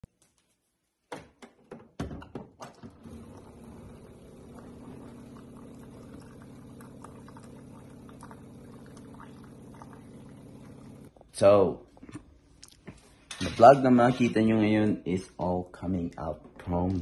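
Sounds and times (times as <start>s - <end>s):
water running into mug: 3.1s - 11.1s
low even hum: 3.1s - 11.2s.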